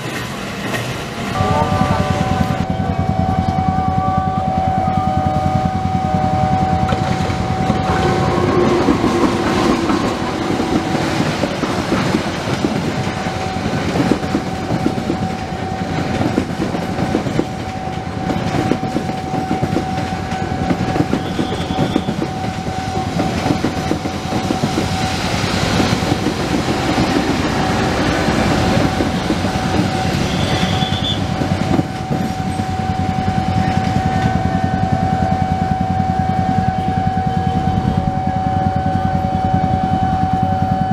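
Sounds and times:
level crossing warning tone: 1.3 - 40.9
train wheels clattering: 5.4 - 35.7.

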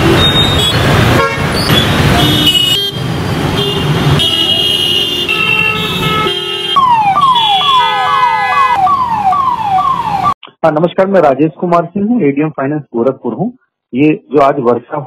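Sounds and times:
vehicle horns honking: 0.0 - 8.8
road traffic: 0.0 - 10.6
ambulance siren: 5.4 - 10.4.

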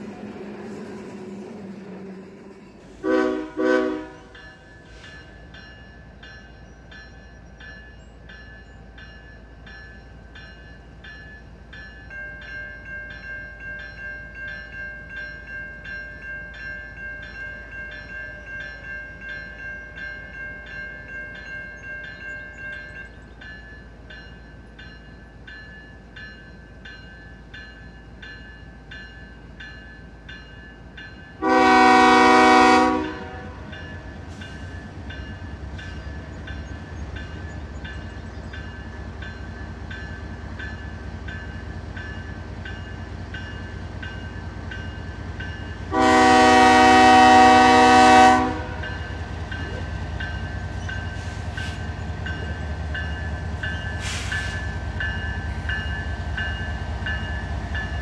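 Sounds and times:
locomotive air horn blast: 3.0 - 4.3, 31.4 - 33.7, 45.9 - 48.8, 54.0 - 54.6.

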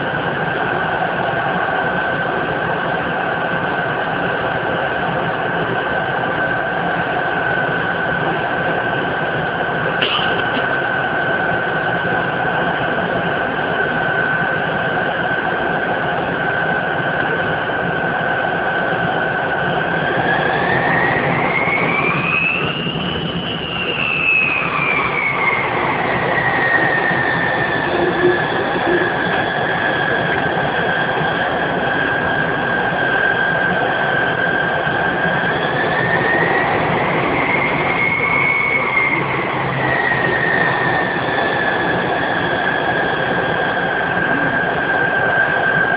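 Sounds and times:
jet engines whining: 0.0 - 45.9.

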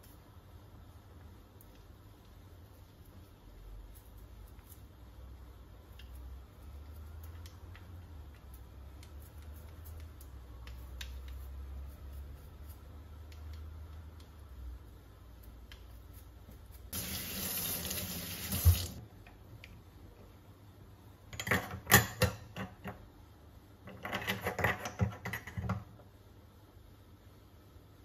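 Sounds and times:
tap running into metal sink: 17.0 - 19.0.

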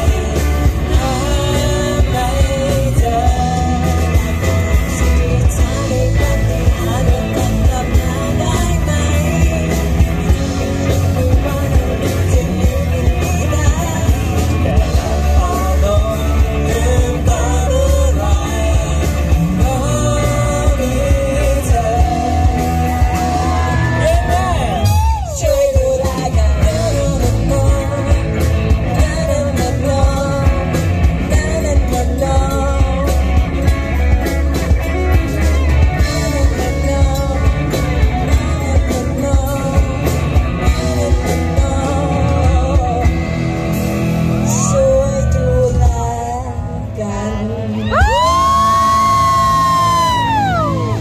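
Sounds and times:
woman singing into microphone: 0.0 - 28.2, 44.5 - 51.0
bass guitar: 0.0 - 51.0
drum kit: 0.0 - 51.0
electric guitars: 0.0 - 51.0
rock band playing: 0.0 - 51.0.

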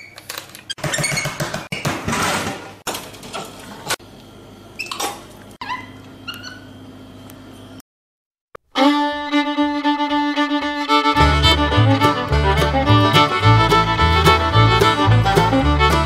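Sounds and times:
fiddle-led music: 8.6 - 16.0.

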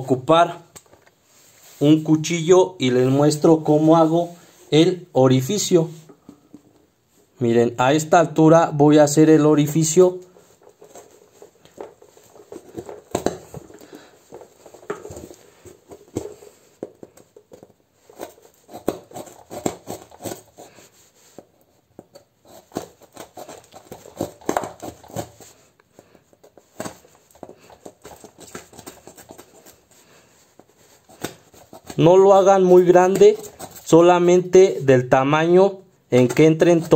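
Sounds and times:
knife cutting cardboard: 9.8 - 34.5.

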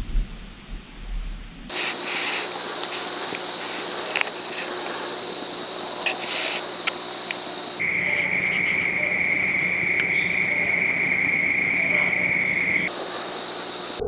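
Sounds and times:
low wind rumble: 0.0 - 14.0
small clicks and snaps: 1.7 - 5.1
insects trilling: 1.7 - 14.0.

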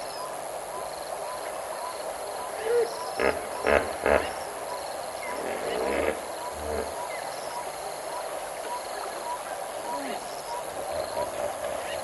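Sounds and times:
harsh animal calls: 2.5 - 7.7.

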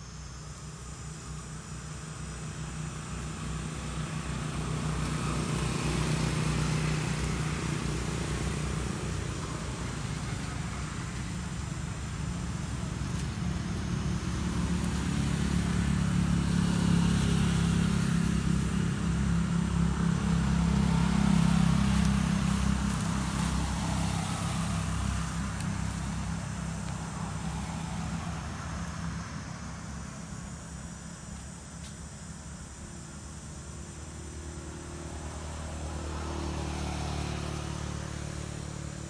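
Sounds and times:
vehicle engine passing: 2.7 - 31.4, 33.9 - 39.0.

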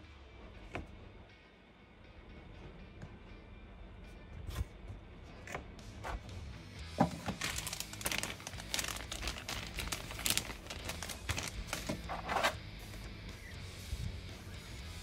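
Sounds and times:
plastic packaging crinkling: 7.0 - 12.6.

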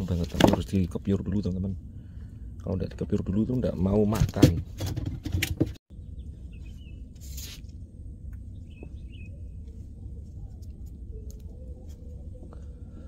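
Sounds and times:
faint bird chirps: 5.9 - 7.5, 8.4 - 13.0.

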